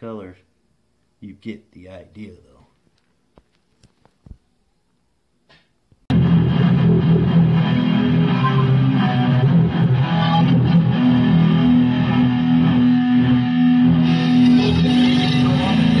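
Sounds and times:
guitar-led music: 6.1 - 16.0.

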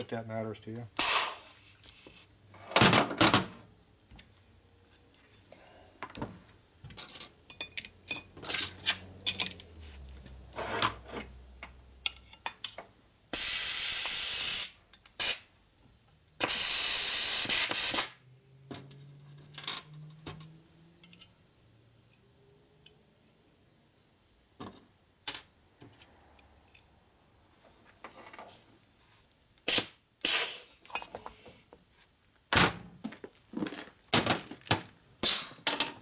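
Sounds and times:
metal clicks and clinks: 7.0 - 9.7, 21.0 - 21.4.

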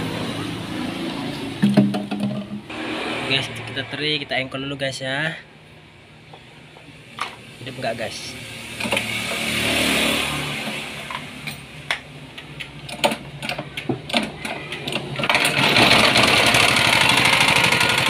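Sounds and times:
engine clicks and knocks: 1.6 - 2.7, 11.9 - 18.0
recoil rope pull-start: 14.8 - 18.0
small engine running steadily: 15.3 - 18.0.

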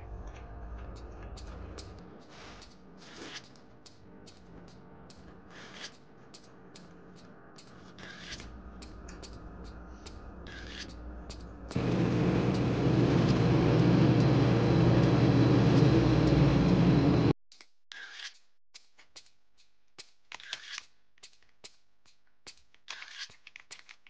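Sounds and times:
loud steady rumbling: 11.7 - 17.3.

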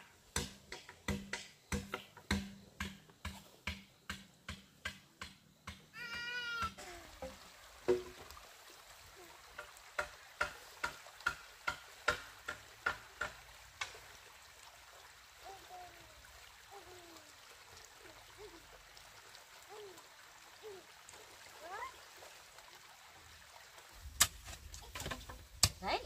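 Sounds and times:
hand tool knocking bamboo: 0.3 - 8.2, 9.6 - 14.0, 24.2 - 25.8.

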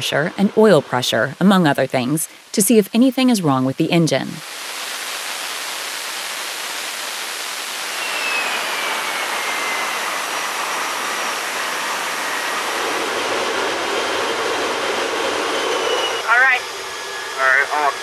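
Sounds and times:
faint whine falling in pitch: 4.4 - 18.0
jet engine roaring: 4.4 - 18.0.

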